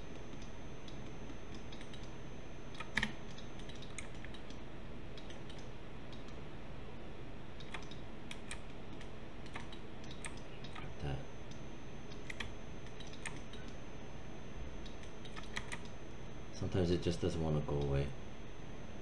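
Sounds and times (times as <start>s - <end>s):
keyboard and mouse clicks: 0.1s - 2.1s, 2.7s - 4.6s, 5.2s - 6.4s, 7.6s - 10.9s, 11.5s - 13.8s, 14.8s - 15.9s.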